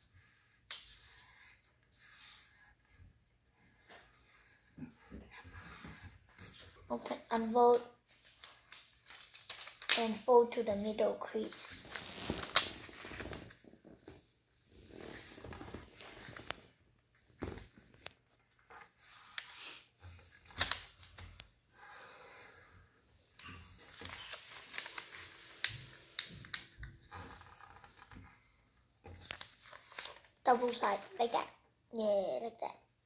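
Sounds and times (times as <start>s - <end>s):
paper rustling: 5.7s - 14.2s, 14.9s - 16.7s, 17.3s - 21.4s, 23.4s - 28.2s, 29.0s - 31.5s.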